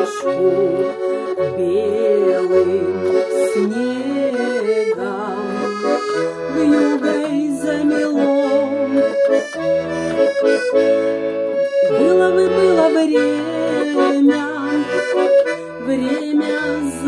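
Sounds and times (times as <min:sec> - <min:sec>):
button accordion playing: 0:00.0 - 0:17.0.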